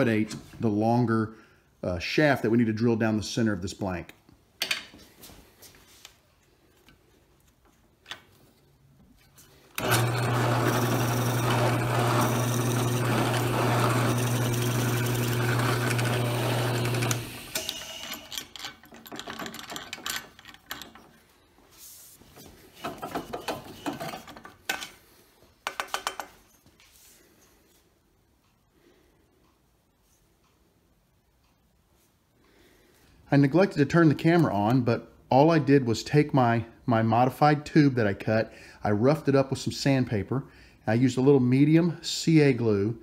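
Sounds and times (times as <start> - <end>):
drill press motor hum: 9.8 - 19.8
knocks and clatter of handling wood: 22.8 - 25.0.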